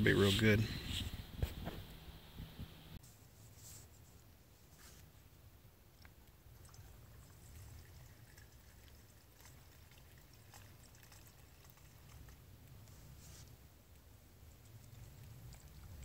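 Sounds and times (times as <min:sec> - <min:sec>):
liquid fuel trickling: 0:06.1 - 0:13.2.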